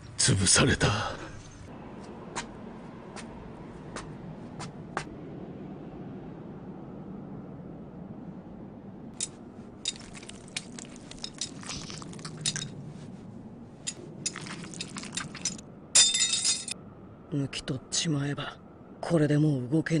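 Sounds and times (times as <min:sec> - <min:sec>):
wet squelching and scraping pulls: 0:09.2 - 0:13.2, 0:13.8 - 0:15.6
metallic clatter: 0:13.8 - 0:16.8.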